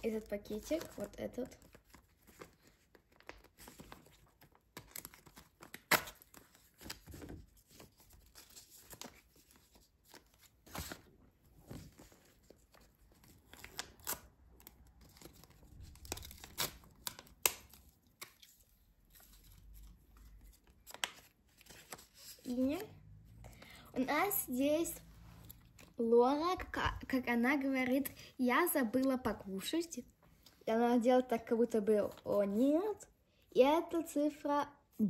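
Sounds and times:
paper rustling and tearing: 0.1s - 11.1s, 11.7s - 22.9s.

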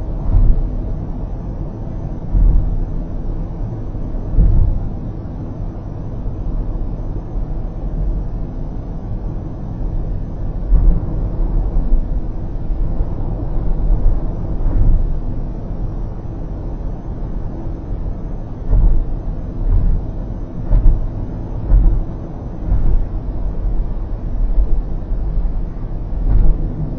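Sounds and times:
low thumps: 0.0s - 0.9s, 2.1s - 5.1s, 10.0s - 16.0s, 17.7s - 26.9s
car road noise rumble: 0.0s - 26.9s.

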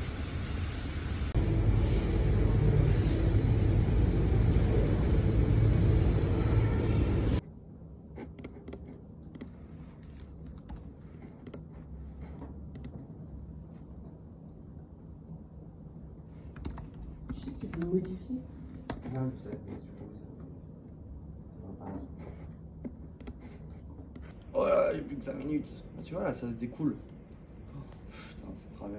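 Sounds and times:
typing on computer keyboard: 8.2s - 11.8s, 12.8s - 13.0s, 16.5s - 19.2s.

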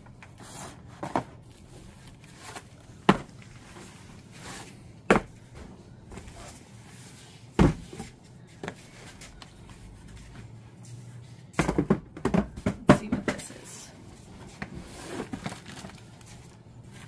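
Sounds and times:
boxes knocking when set down: 7.6s - 8.1s, 11.6s - 13.4s
packaging rustling: 15.0s - 17.0s.

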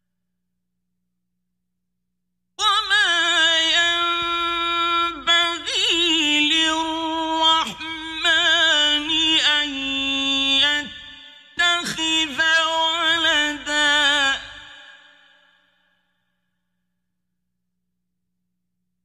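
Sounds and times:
man reciting in melodic chant: 2.6s - 15.6s.

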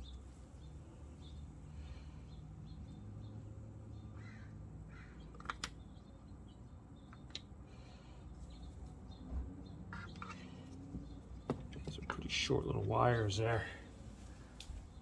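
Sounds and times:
bird calls: 0.0s - 12.2s
sharp plastic clicks: 5.3s - 5.9s.

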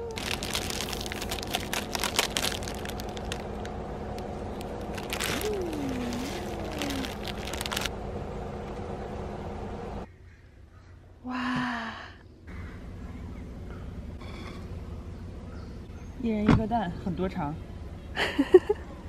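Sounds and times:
dry noodles crunching: 0.0s - 7.9s
plastic packet crinkling: 0.0s - 7.9s.

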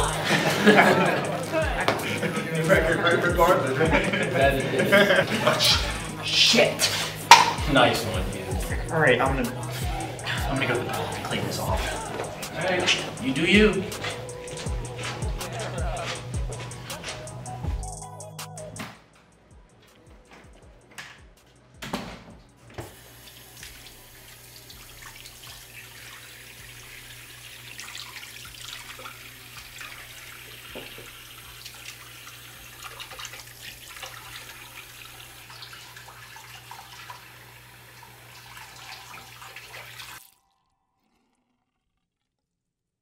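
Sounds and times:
water splashing on hard surface: 7.0s - 7.6s, 22.9s - 37.3s.

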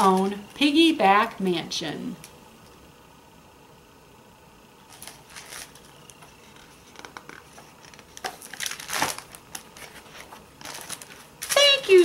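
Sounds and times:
book pages rustling: 4.8s - 11.8s.

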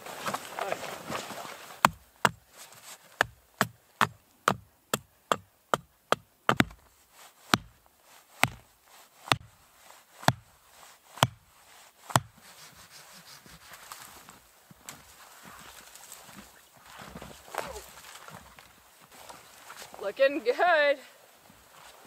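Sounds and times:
hatchet knocking tent stake: 1.8s - 2.4s, 3.2s - 6.9s, 7.5s - 7.8s, 8.4s - 8.6s, 9.3s - 9.5s, 10.2s - 10.5s, 11.2s - 11.4s, 12.1s - 12.4s.

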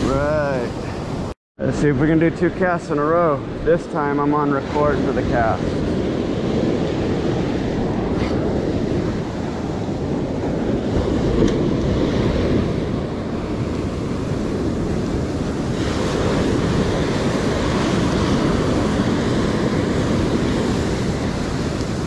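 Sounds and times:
ocean surf on sandy beach: 0.0s - 22.0s
wind buffeting microphone: 1.9s - 22.0s.

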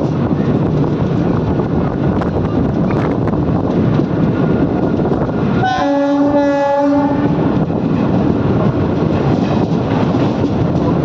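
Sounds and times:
moving train running noise: 0.0s - 11.0s
train horn: 5.6s - 7.5s.

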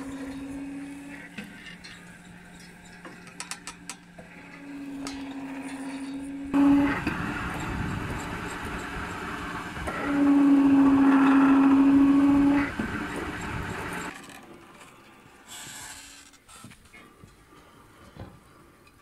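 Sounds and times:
loud steady squeal: 0.0s - 3.1s, 4.2s - 14.1s
pump rod rubbing and clanking: 0.0s - 14.3s.

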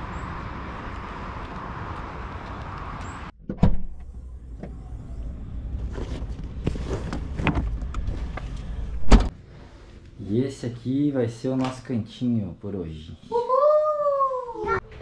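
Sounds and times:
car engine rumbling: 3.9s - 9.3s.

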